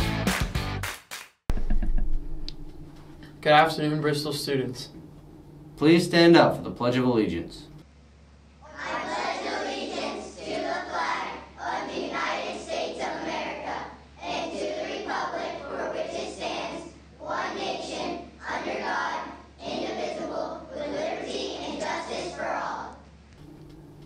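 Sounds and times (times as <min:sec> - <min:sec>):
students reciting in unison: 0:08.6 - 0:23.0.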